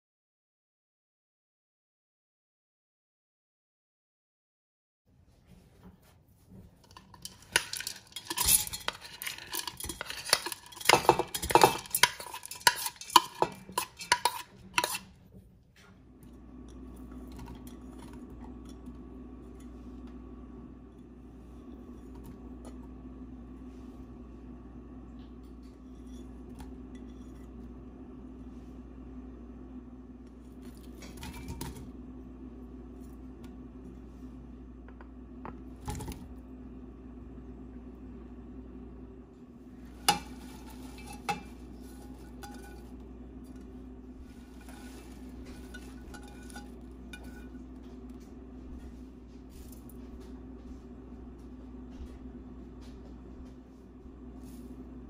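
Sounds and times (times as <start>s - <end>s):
low background hum: 5.1s - 55.0s
ingredients clinking against steel pot: 6.8s - 15.1s, 40.0s - 43.0s, 44.5s - 47.7s.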